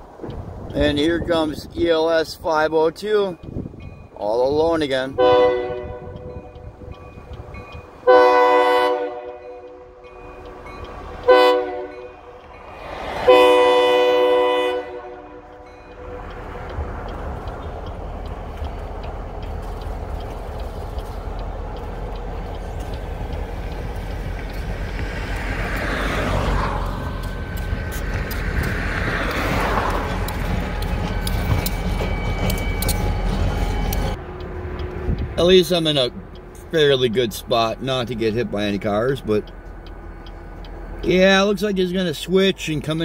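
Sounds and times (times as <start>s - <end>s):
locomotive low rumble: 0.0s - 43.0s
locomotive air horn blasts: 5.1s - 6.3s, 8.0s - 10.6s, 11.2s - 12.2s, 13.2s - 16.3s
car driving past: 10.4s - 20.6s, 21.3s - 31.0s.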